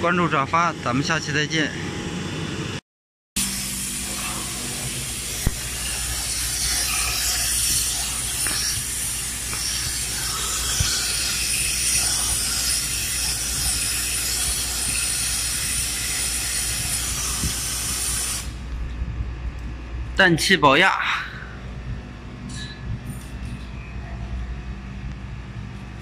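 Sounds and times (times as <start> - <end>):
gas hissing through hose: 3.4 - 18.6
low hum: 3.4 - 20.2, 21.0 - 26.0.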